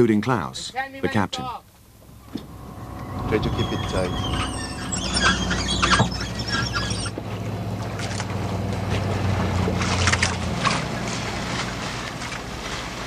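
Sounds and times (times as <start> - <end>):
water noise: 0.0 - 13.0
wind: 0.0 - 13.0
steady low drone: 1.8 - 12.4.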